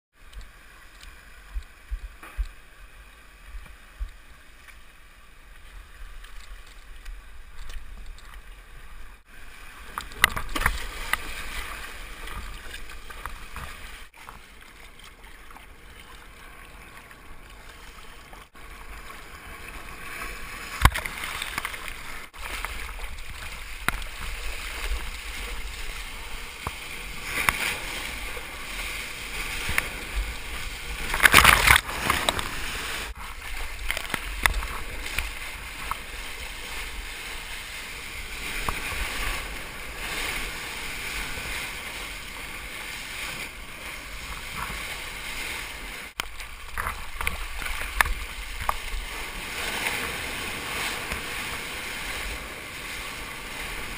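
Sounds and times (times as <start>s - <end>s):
water sloshing and splashing: 0.2s - 53.9s.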